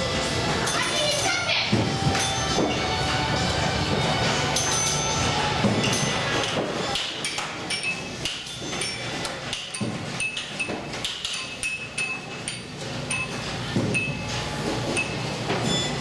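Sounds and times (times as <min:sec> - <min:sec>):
pinball machines clicking and clacking: 0:00.0 - 0:16.0
pinball chime bells ringing: 0:00.6 - 0:02.8, 0:04.4 - 0:07.0.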